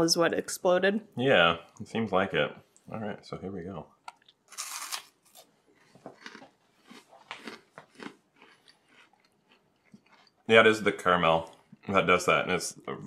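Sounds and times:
crunchy candy being chewed: 4.1 - 10.6.

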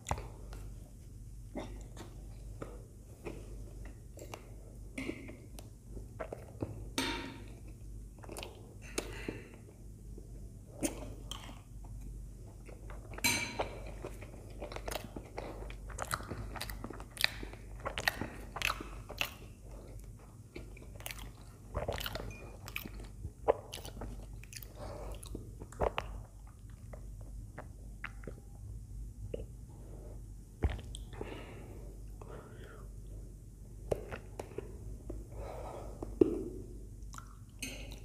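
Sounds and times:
wet chewing and mouth smacks: 0.0 - 0.7, 10.8 - 28.6, 30.6 - 31.2, 37.0 - 38.0.

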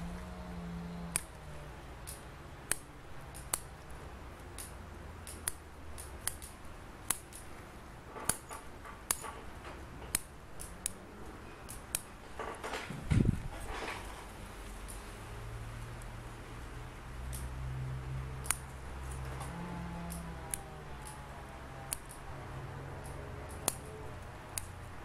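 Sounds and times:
scissors snipping pine needles: 1.0 - 7.5, 8.2 - 9.3, 10.0 - 12.2, 14.7 - 15.1, 17.2 - 22.4, 23.0 - 25.0.

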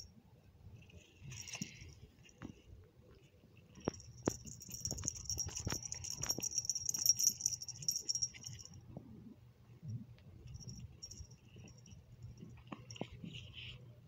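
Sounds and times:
high jingling with ticks: 3.7 - 8.8, 10.5 - 13.6.

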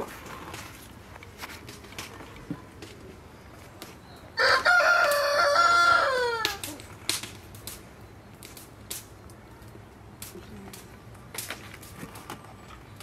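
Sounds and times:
rooster crowing: 4.4 - 6.6.

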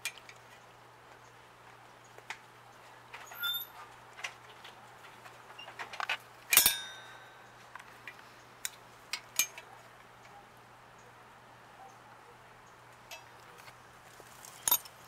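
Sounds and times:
metal tools clinking: 3.2 - 3.9, 5.6 - 7.3, 14.4 - 15.0
ringing metal clank: 3.3 - 3.8, 6.5 - 7.4.

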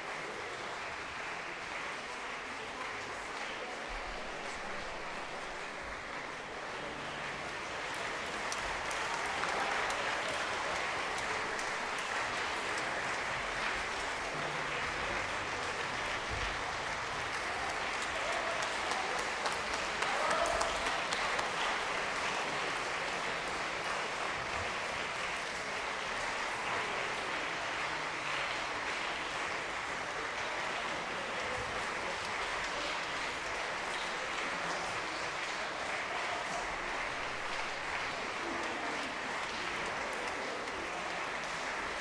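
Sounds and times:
audience applauding: 0.0 - 42.0.

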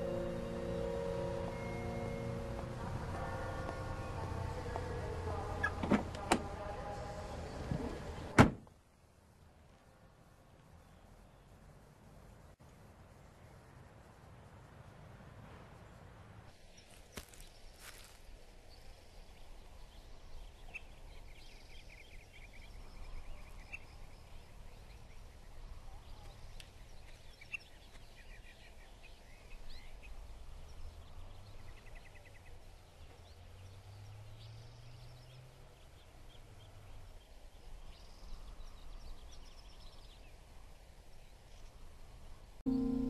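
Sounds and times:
faint background noise: 0.0 - 43.0
small birds chirping: 16.5 - 41.8.

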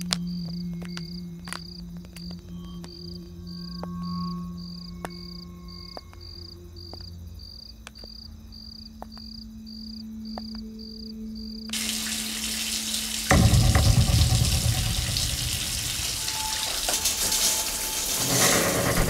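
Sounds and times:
crickets chirping: 0.0 - 19.0
low held music notes: 8.9 - 19.0
shower water hissing: 11.7 - 19.0.

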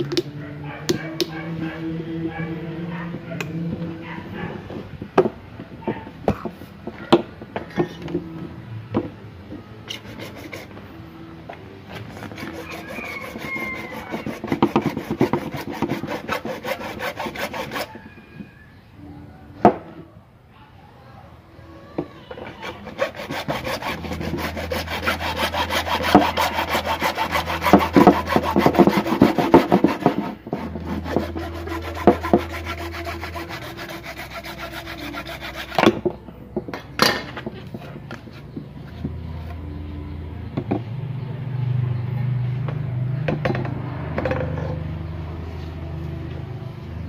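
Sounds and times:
hacksaw cutting plastic pipe: 12.0 - 17.9, 22.4 - 36.1.

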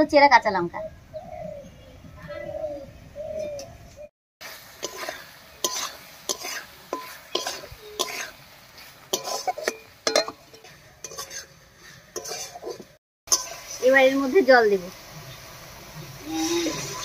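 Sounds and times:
paste frying: 4.4 - 17.0
spatula scraping metal pan: 4.8 - 13.6.

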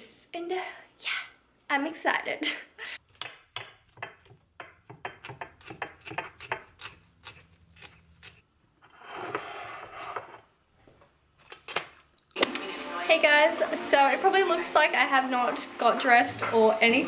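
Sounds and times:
knife scraping through sandwich: 5.6 - 10.4.

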